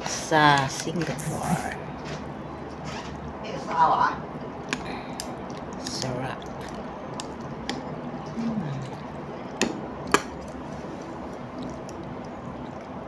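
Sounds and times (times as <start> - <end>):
eating sounds: 4.3 - 13.0.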